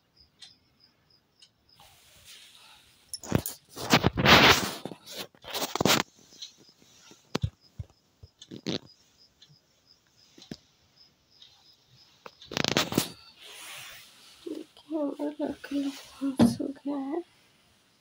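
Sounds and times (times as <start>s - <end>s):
cricket chirping: 0.0s - 17.8s
phone handling rustling and scraping: 3.2s - 6.1s, 12.3s - 13.2s.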